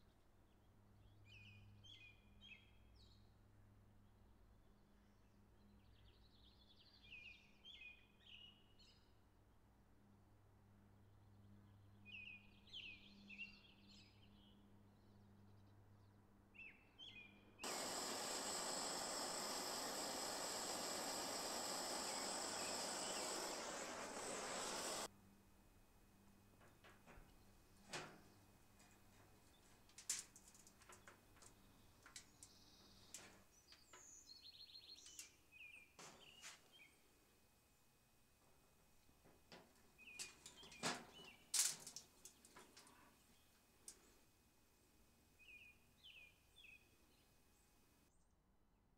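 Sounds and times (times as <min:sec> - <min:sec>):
faint bird chirps: 0:16.6 - 0:25.1
gas torch flame hissing: 0:17.6 - 0:25.1
steady low hum: 0:17.6 - 0:25.1.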